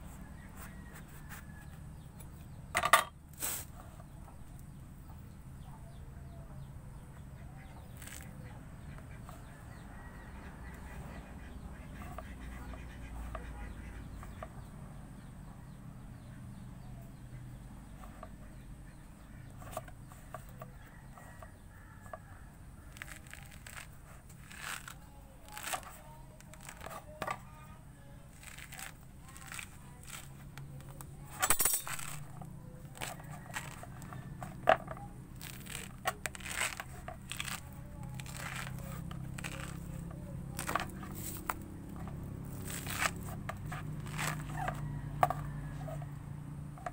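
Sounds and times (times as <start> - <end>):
faint low hum: 0.0 - 46.9
fruit rind tearing and snapping: 7.9 - 9.5, 22.9 - 27.4, 28.3 - 46.0.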